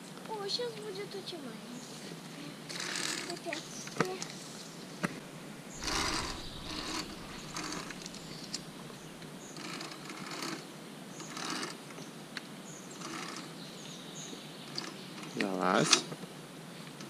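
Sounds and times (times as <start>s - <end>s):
pulley rolling along steel cable: 5.8s - 10.6s.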